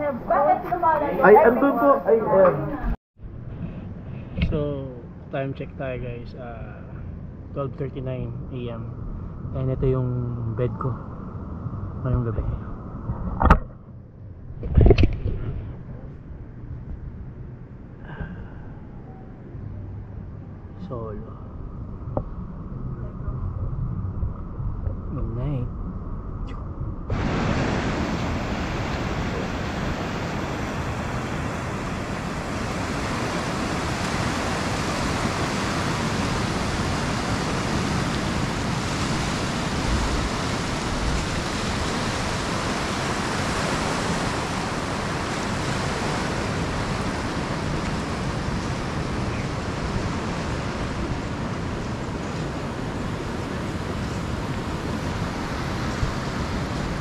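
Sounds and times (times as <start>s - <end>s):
ocean surf washing on beach: 27.1s - 57.0s.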